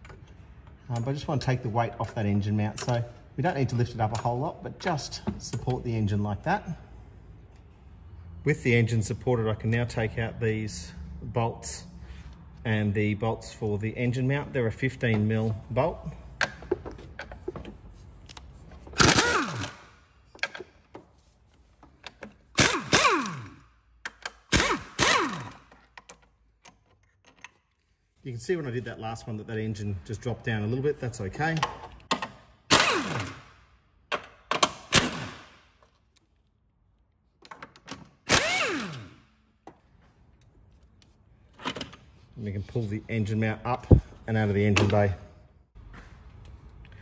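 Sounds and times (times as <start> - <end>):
pneumatic impact wrench bursts: 19.0 - 19.9, 22.5 - 23.6, 24.4 - 25.7, 32.7 - 33.6, 34.8 - 35.6, 38.2 - 39.2.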